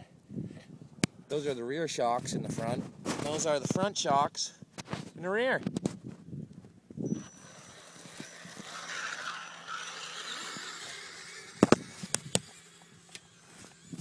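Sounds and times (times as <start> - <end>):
toy truck motor and tyres rushing: 7.1 - 14.0.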